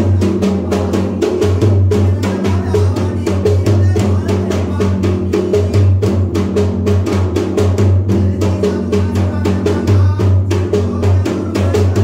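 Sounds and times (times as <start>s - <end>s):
drum beaten fast: 0.0s - 12.0s.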